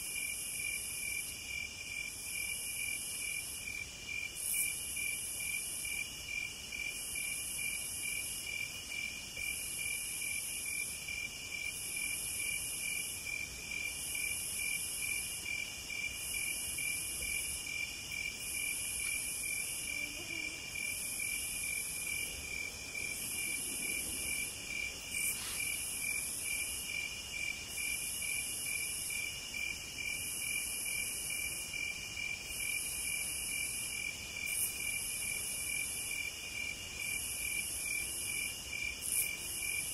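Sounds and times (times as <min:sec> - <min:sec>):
crickets trilling: 0:00.0 - 0:39.9
high insect buzz: 0:00.2 - 0:39.9.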